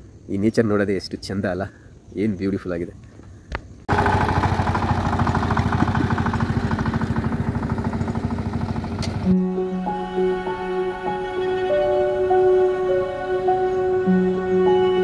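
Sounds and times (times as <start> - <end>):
small engine chugging: 3.9 - 9.3.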